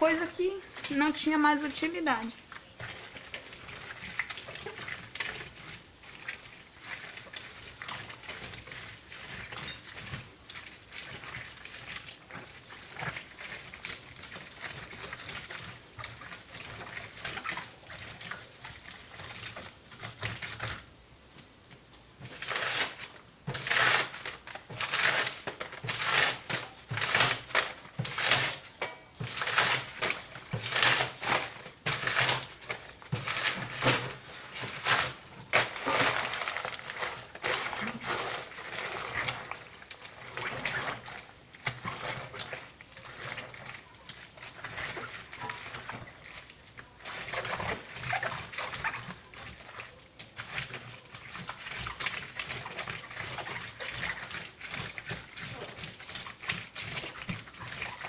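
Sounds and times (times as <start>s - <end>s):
wet paper pulp squelching: 0.0s - 21.6s, 22.2s - 58.0s
paper tearing: 22.3s - 28.6s, 29.4s - 39.3s.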